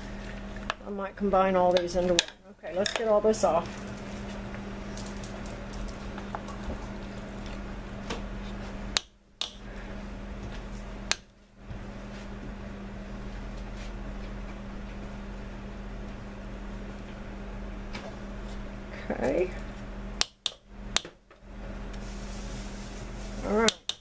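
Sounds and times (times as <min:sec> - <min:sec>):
steady low hum: 0:00.0 - 0:24.0
utensils clicking and tapping: 0:01.7 - 0:03.2, 0:08.9 - 0:09.6, 0:23.5 - 0:24.0.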